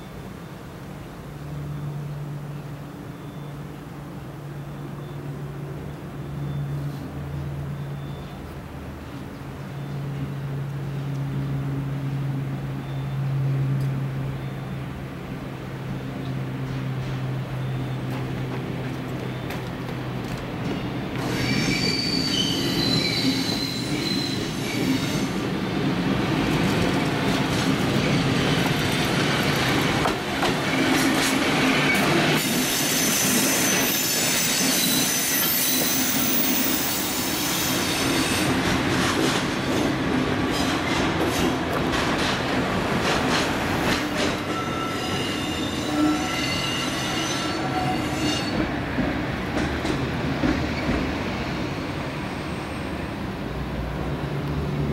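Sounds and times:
train rumbling: 0.3 - 54.9
steel wheels squealing: 21.2 - 25.7, 30.6 - 38.9, 44.0 - 48.8, 52.1 - 53.0
wheels clicking over rail joints: 37.8 - 44.6.

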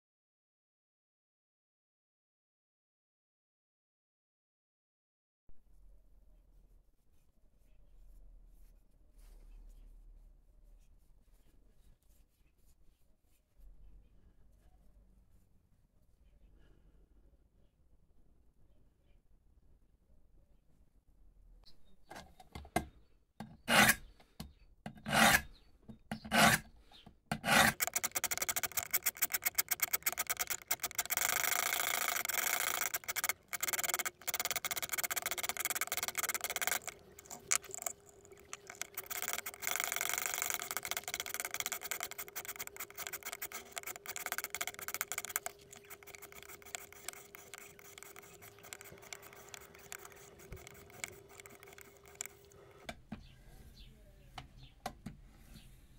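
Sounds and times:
sharpening stones rasping on blade: 23.7 - 24.1, 25.0 - 25.6, 26.2 - 26.7, 27.3 - 52.5.

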